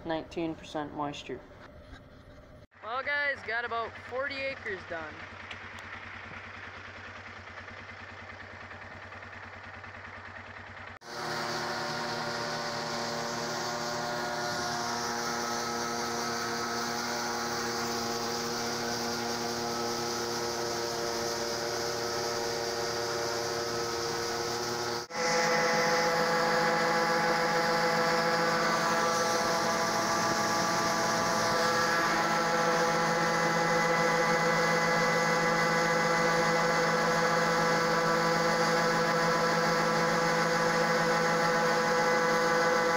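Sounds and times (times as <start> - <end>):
combine harvester droning: 0.0 - 42.9
tractor running: 0.0 - 42.9
grain pouring from auger: 11.0 - 42.9.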